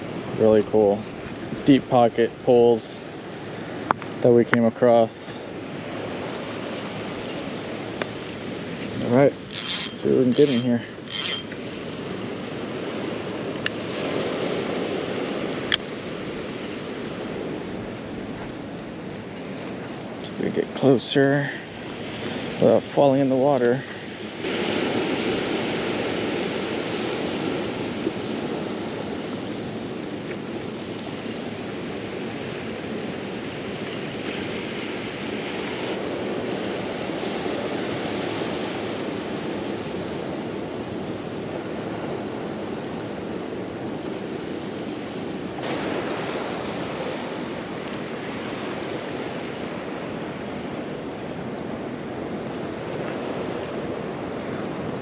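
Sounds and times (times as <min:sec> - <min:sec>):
ocean surf on rocky shore: 0:00.0 - 0:55.0.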